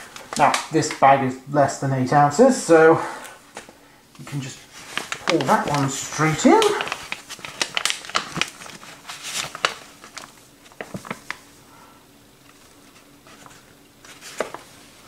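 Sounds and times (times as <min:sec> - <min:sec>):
bag rustling and crinkling: 0:04.2 - 0:11.6, 0:12.4 - 0:15.0.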